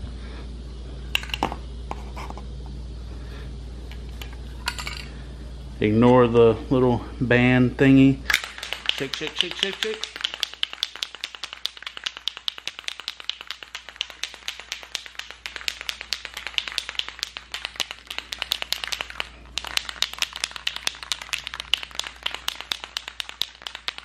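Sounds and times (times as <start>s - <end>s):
spray can mixing ball rattling: 8.3s - 24.0s.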